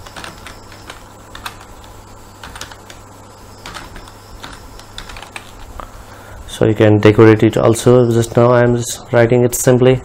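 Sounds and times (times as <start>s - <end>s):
computer keyboard typing: 0.0s - 5.8s.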